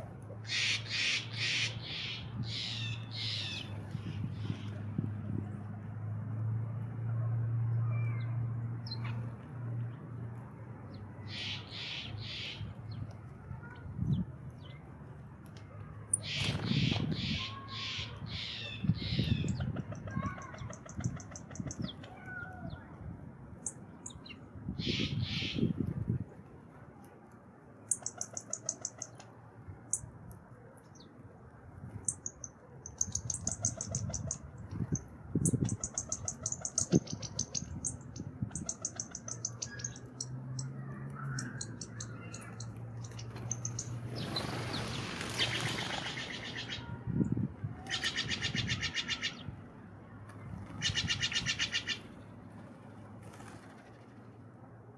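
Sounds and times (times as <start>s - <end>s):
songbirds chirping in trills: 0.3s - 5.1s, 7.8s - 25.8s, 27.8s - 31.2s, 31.9s - 54.5s
flapping wings: 16.3s - 17.1s, 43.2s - 46.5s, 53.2s - 54.1s.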